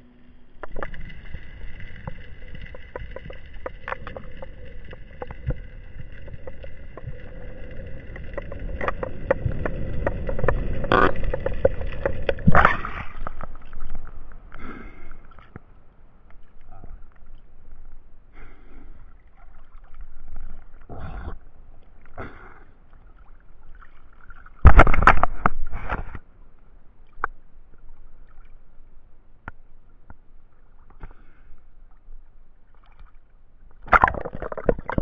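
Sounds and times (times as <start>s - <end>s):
water sloshing and splashing: 0.5s - 35.0s
loud splash: 24.6s - 25.4s.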